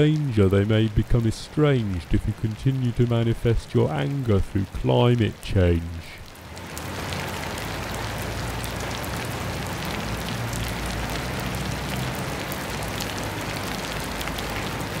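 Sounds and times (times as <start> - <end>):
raindrops ticking: 0.0 - 15.0
steady rain: 0.0 - 15.0.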